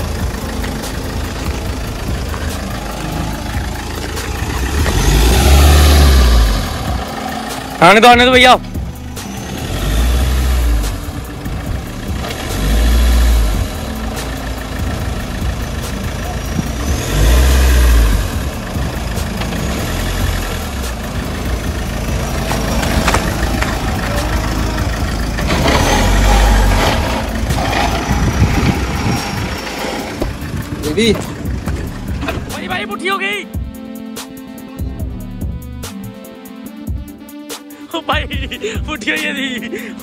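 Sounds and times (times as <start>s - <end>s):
engine revving under load: 1.1s - 32.6s.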